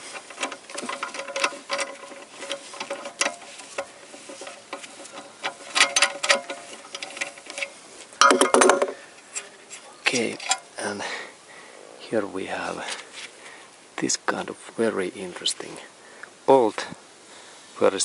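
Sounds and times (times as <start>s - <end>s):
metal rattle: 0.0s - 10.8s.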